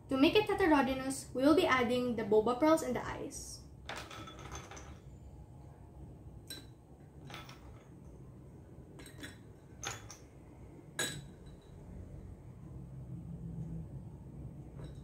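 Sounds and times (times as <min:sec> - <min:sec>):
metal spoon clinking on ceramic and glass: 0:06.4 - 0:07.8, 0:09.0 - 0:10.3, 0:11.0 - 0:11.8.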